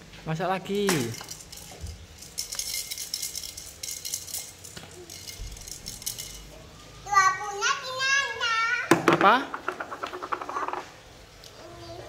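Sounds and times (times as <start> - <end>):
plastic toy pieces clattering: 0.9 - 6.5, 9.2 - 10.9.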